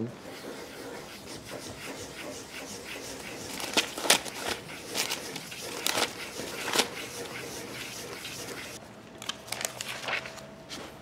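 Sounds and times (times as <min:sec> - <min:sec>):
ballpoint pen scribbling on paper: 0:00.2 - 0:08.8.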